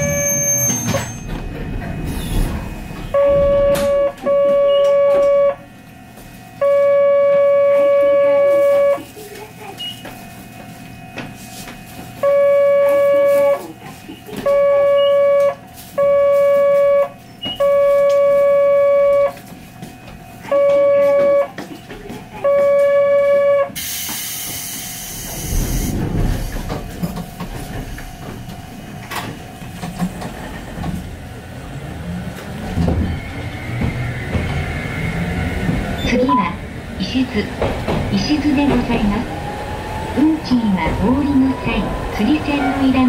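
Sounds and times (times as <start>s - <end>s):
tram warning beeps: 0.0s - 5.8s, 6.5s - 9.1s, 9.7s - 10.2s, 12.2s - 19.5s, 20.4s - 28.4s, 32.7s - 43.0s.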